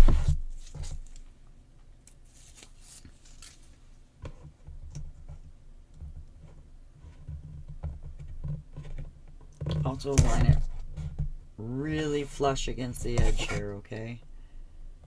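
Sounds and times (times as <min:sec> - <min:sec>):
paper rustling: 0:02.2 - 0:03.9.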